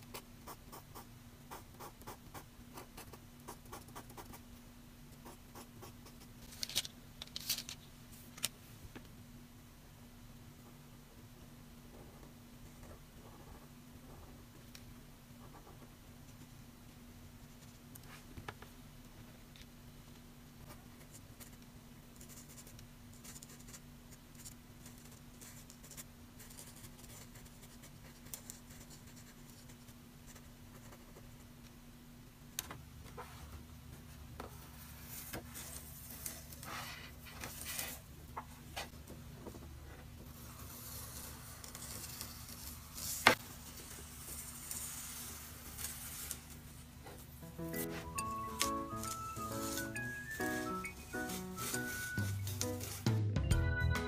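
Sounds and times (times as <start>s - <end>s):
tape peeled from paper: 40.4s - 46.8s, 48.9s - 53.0s.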